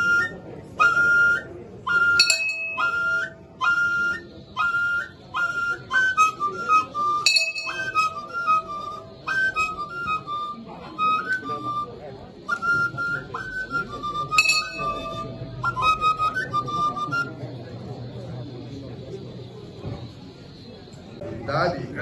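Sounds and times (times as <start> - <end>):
flute playing short phrases: 0.0 - 17.4.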